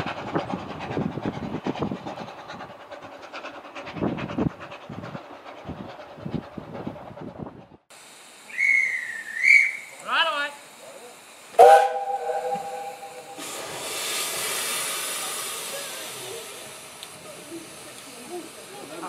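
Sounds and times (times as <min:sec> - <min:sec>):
steam hissing: 0:00.0 - 0:19.0
steam whistle: 0:08.5 - 0:09.9, 0:11.6 - 0:13.6
short high whistles: 0:08.5 - 0:10.0.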